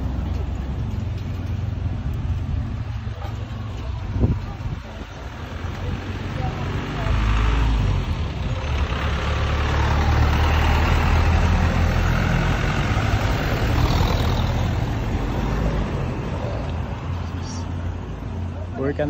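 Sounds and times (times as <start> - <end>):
road noise: 0.0 - 19.0
vehicle engine driving past: 5.4 - 17.7.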